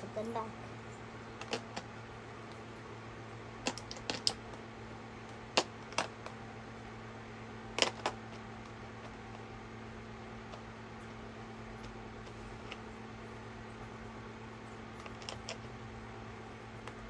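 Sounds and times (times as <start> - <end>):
steady low hum: 0.0 - 17.0
paint tubes clicking into plastic tray: 1.4 - 1.9, 3.6 - 4.4.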